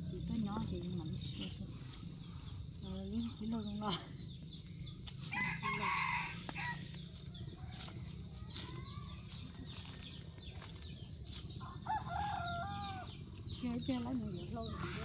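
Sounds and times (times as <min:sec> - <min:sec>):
small birds chirping: 0:00.0 - 0:15.0
rooster crowing: 0:05.3 - 0:07.0, 0:11.6 - 0:13.2.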